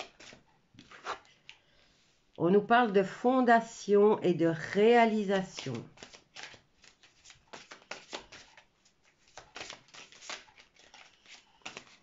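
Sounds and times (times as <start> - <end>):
cards being shuffled: 0.0 - 1.5, 5.3 - 12.0.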